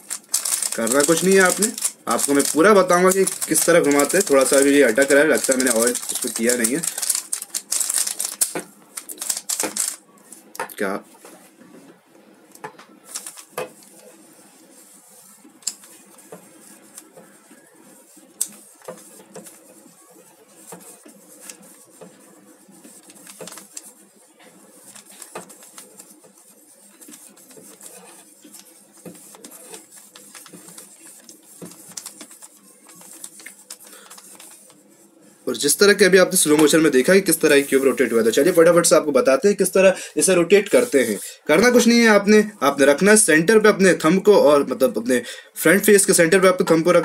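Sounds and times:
speed cube clicking as turned: 0.0 - 10.0, 23.1 - 23.8, 30.2 - 32.5.

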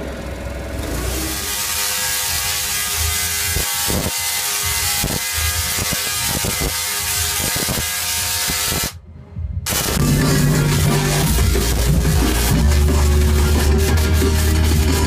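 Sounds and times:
tesla coil buzzing: 0.9 - 9.0, 9.7 - 15.0
spark discharges cracking: 1.4 - 9.0, 9.7 - 12.6.

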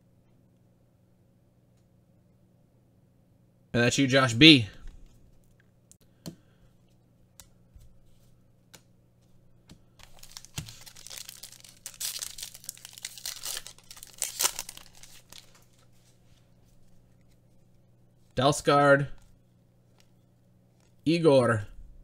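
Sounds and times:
plastic wrapper tearing: 10.0 - 15.8.

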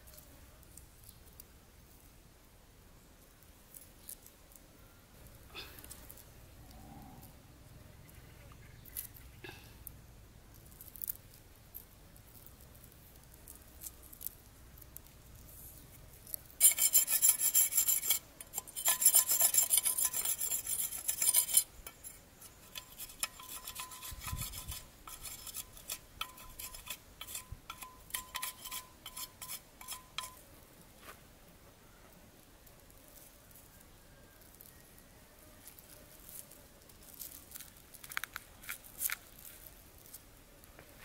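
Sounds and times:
rasping scrapes on wooden block: 16.6 - 30.4.

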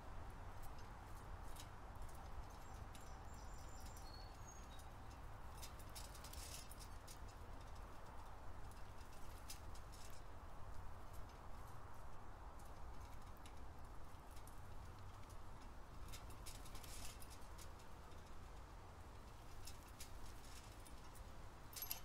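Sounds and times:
faint high bird chirps: 2.6 - 4.9
rustling: 12.6 - 22.0.

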